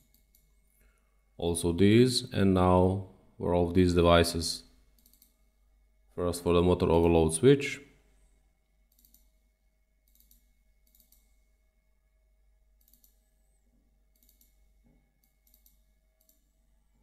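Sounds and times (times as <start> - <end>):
faint computer mouse clicks: 5.0 - 5.4, 8.9 - 9.3, 10.0 - 11.3, 12.8 - 13.2, 14.1 - 14.6, 15.2 - 16.5.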